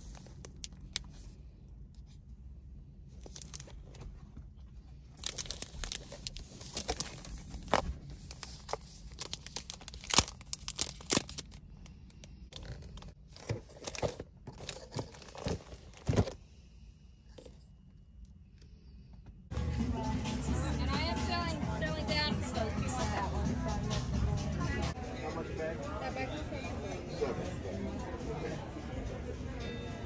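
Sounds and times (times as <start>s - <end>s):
foil wrapper crinkling and tearing: 3.2s - 3.8s, 5.2s - 15.9s.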